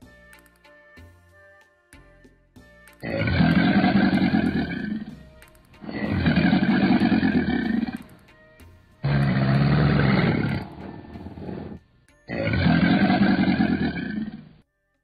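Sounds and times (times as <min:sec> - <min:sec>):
crocodile bellowing: 0:03.0 - 0:05.2, 0:05.8 - 0:08.1, 0:09.0 - 0:14.6.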